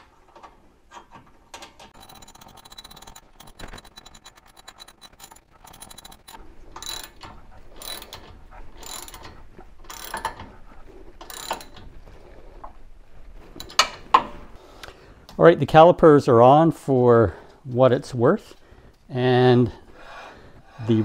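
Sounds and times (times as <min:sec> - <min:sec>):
socket ratchet clicking: 0:02.0 - 0:07.2.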